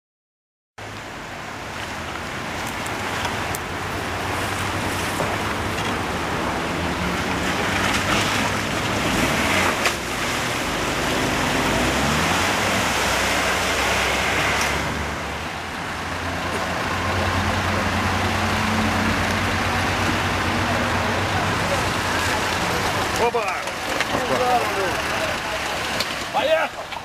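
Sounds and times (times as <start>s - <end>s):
water splashing: 1.0s - 27.0s
engine running under load: 2.6s - 26.4s.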